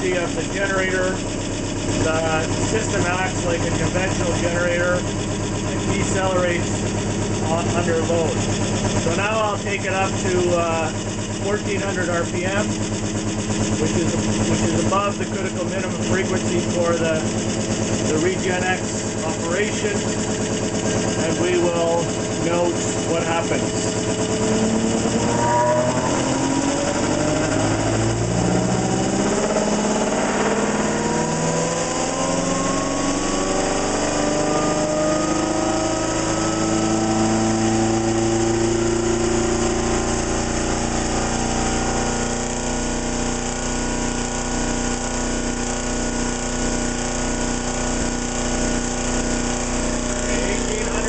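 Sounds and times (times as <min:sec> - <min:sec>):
motor whine rising in pitch: 0:00.0 - 0:51.0.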